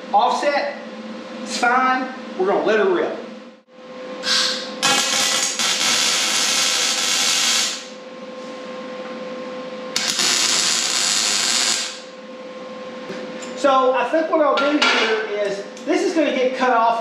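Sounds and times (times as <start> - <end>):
welder crackling hiss: 4.2 - 8.0, 10.0 - 12.1.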